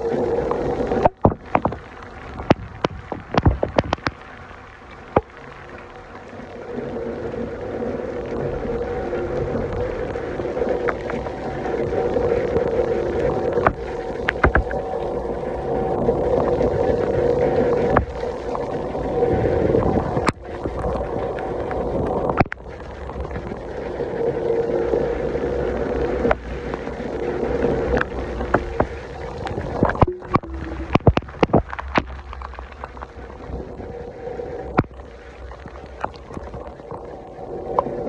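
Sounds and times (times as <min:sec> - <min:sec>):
heavy rain: 0:00.0 - 0:38.0
sharp taps and splashes: 0:01.0 - 0:05.4, 0:13.6 - 0:14.8, 0:17.9 - 0:18.3, 0:27.9 - 0:33.5.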